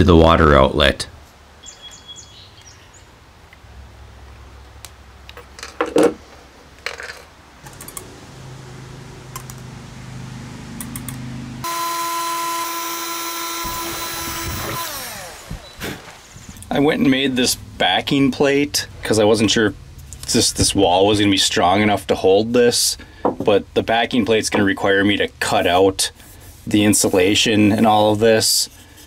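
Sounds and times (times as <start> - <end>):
sharp click: 10.8 - 11.2
cordless drill drilling: 11.6 - 16.2.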